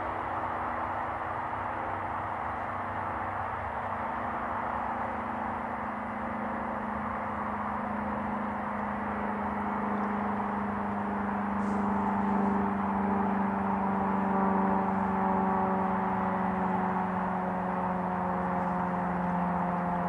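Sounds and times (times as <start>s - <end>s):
combine harvester machinery hum: 0.0s - 20.0s.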